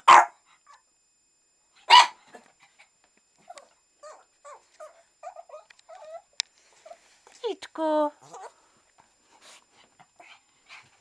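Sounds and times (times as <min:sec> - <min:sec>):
dog barking sharply: 0:00.1 - 0:00.4, 0:01.9 - 0:02.2
dog whining softly: 0:02.3 - 0:07.3.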